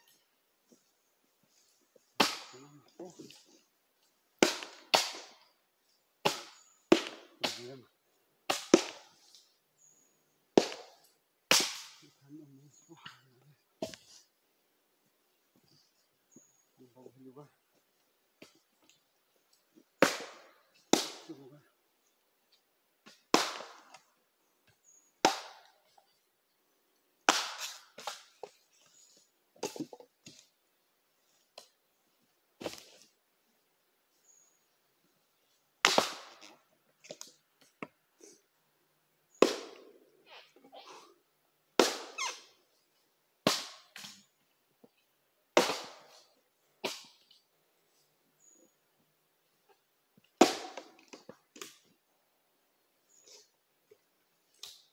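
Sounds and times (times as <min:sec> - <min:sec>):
axe chopping wood: 0:02.2 - 0:02.6, 0:04.4 - 0:05.4, 0:06.2 - 0:07.6, 0:08.5 - 0:09.1, 0:10.6 - 0:10.9, 0:11.5 - 0:12.0, 0:20.0 - 0:21.3, 0:23.0 - 0:24.1, 0:25.2 - 0:25.8, 0:27.3 - 0:28.5, 0:35.8 - 0:36.4, 0:41.8 - 0:42.2, 0:43.4 - 0:44.2, 0:45.6 - 0:46.2, 0:50.4 - 0:51.8.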